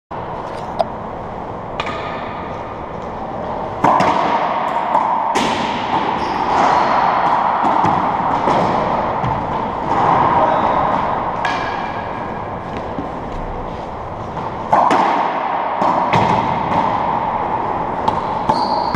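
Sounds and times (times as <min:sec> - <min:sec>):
racquet hitting ball: 0:01.7 - 0:02.6, 0:03.4 - 0:13.5, 0:14.2 - 0:18.9
ball hitting court walls: 0:03.8 - 0:13.1, 0:14.3 - 0:18.9.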